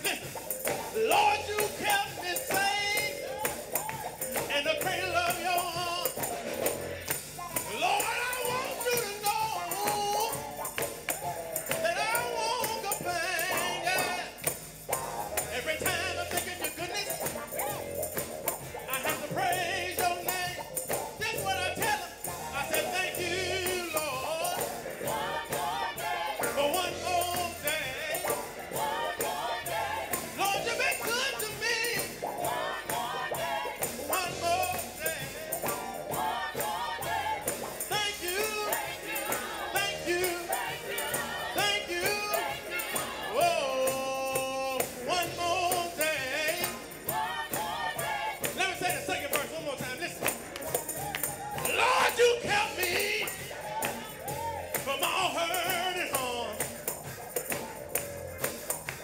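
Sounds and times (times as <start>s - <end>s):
gospel choir singing: 0.0s - 59.0s
percussion beat: 0.0s - 59.0s.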